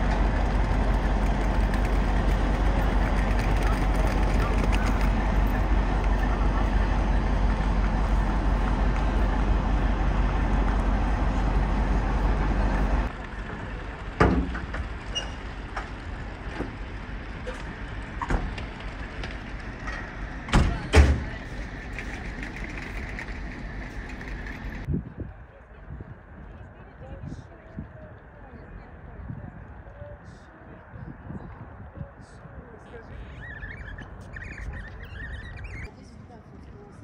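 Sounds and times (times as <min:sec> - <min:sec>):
diesel locomotive idling: 0:00.0 - 0:24.9
open-air ambience: 0:00.0 - 0:37.0.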